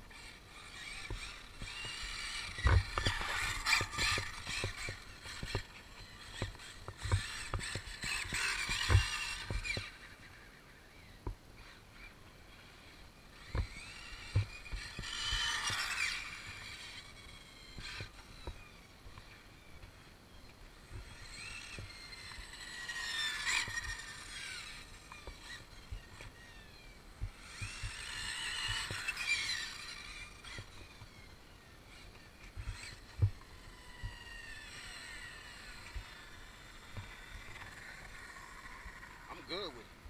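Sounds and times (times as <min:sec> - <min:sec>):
electric motor whining: 0:00.0 - 0:40.0.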